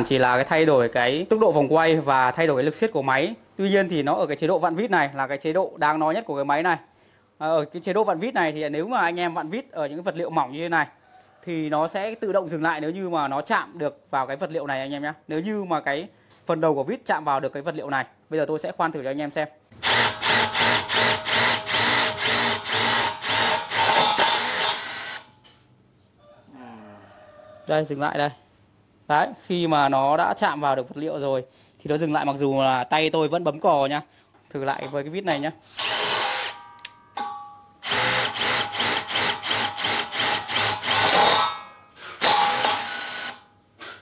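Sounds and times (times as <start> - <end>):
impact driver driving screw: 19.8 - 25.3, 35.8 - 36.9, 37.8 - 44.0.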